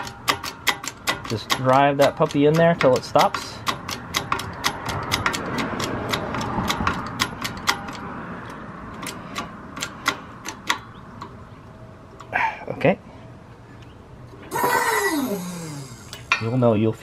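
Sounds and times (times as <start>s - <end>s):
hydraulic press pump clicking: 14.5s - 16.4s.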